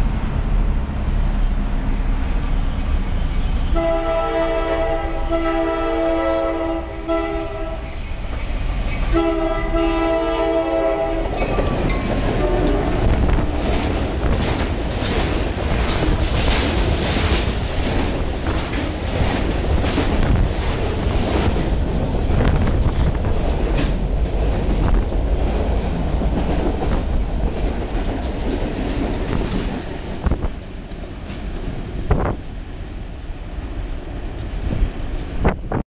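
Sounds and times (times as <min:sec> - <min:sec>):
diesel locomotives passing: 0:00.0 - 0:35.8
freight cars clattering over rail joints: 0:11.2 - 0:30.4.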